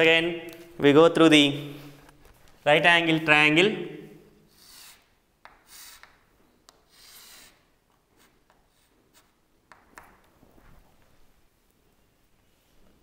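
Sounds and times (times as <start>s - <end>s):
chalk scraping on chalkboard: 4.5s - 9.4s
chalk tapping on board: 4.5s - 10.2s.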